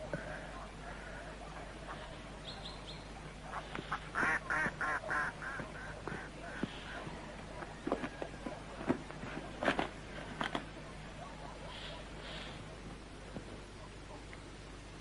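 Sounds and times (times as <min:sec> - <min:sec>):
duck quacking: 0:03.5 - 0:07.0.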